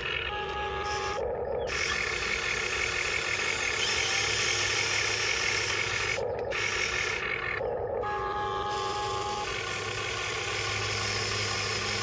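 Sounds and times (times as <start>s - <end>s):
toy excavator motor whining: 0.0s - 12.0s.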